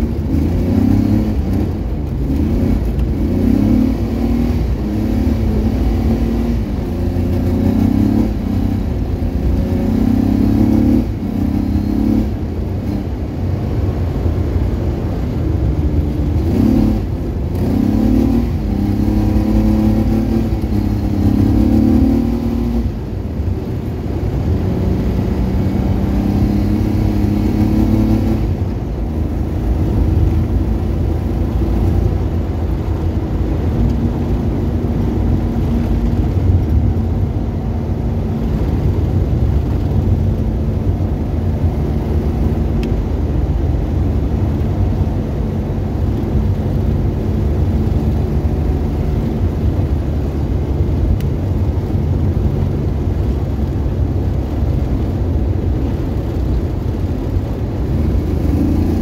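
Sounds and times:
car engine running: 0:00.0 - 0:59.0
tyres rumbling on snow: 0:00.0 - 0:59.0.

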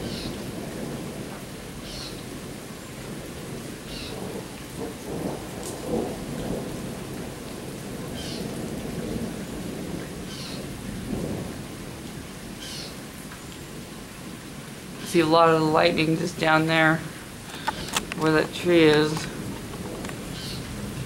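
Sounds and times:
steady rain falling: 0:00.0 - 0:21.0
thunder rumbling: 0:00.0 - 0:21.0.

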